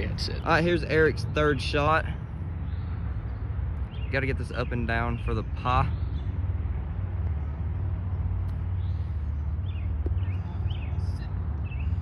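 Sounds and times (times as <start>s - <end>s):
low outdoor rumble: 0.0s - 12.0s
bird chirping: 0.3s - 12.0s.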